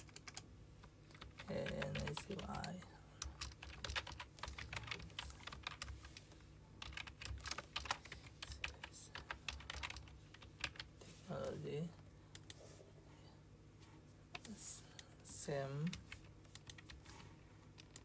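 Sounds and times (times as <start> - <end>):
keyboard typing: 0.0 - 10.9, 15.8 - 17.1, 17.7 - 18.0.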